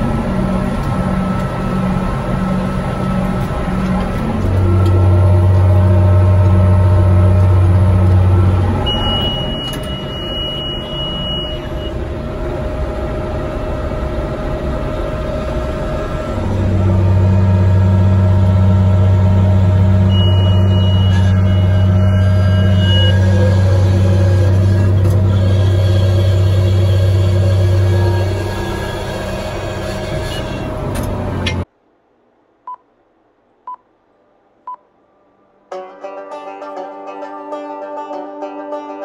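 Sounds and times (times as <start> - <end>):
tractor engine droning: 0.0 - 31.7
monitor high beep: 8.8 - 12.0, 20.1 - 21.9.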